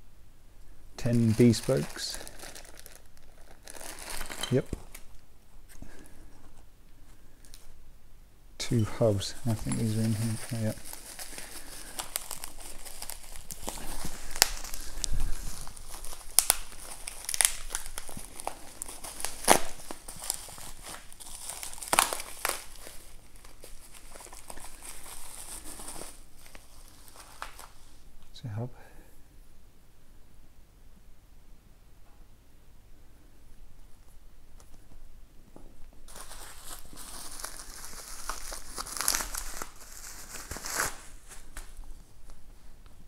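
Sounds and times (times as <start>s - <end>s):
plastic bags crinkling: 1.0s - 5.2s, 8.6s - 28.0s, 36.1s - 42.6s.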